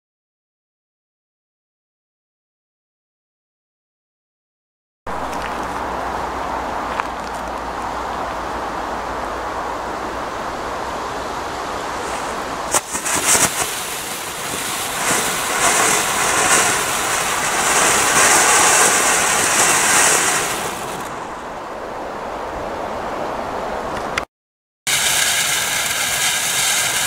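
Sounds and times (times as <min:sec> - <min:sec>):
firework pops: 0:12.0 - 0:21.1, 0:24.9 - 0:27.0
hiss of spraying sparks: 0:12.0 - 0:21.1, 0:24.9 - 0:27.0.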